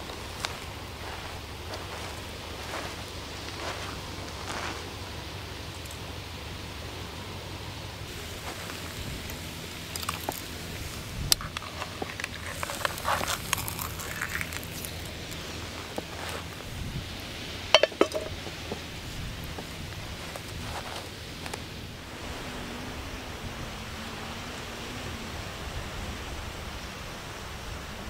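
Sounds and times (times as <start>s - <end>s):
pan and utensil clinking: 17.7s - 18.8s.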